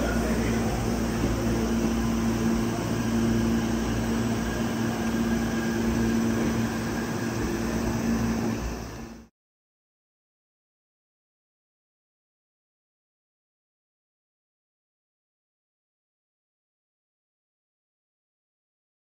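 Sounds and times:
electric train humming: 0.0s - 9.3s.

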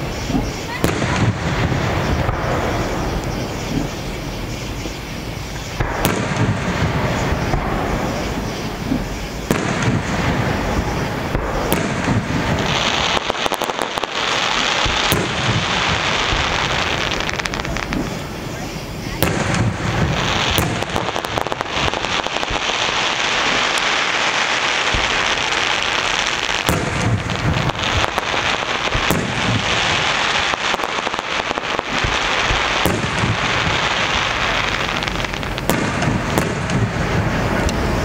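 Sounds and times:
fireworks crackling: 0.0s - 38.0s
firework shell bursts with low thuds: 5.6s - 14.1s, 24.8s - 34.2s, 34.9s - 38.0s.

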